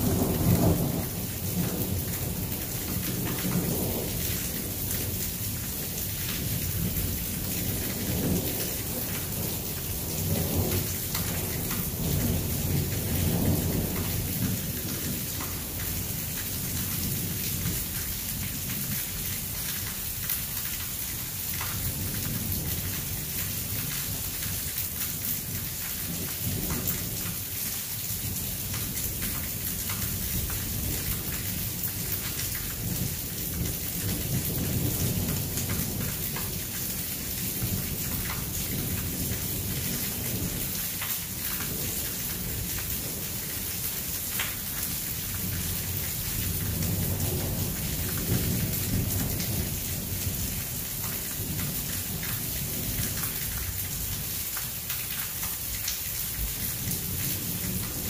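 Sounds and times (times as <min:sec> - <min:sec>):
thunder rumbling: 0:00.0 - 0:17.9
rain hissing: 0:00.0 - 0:58.0.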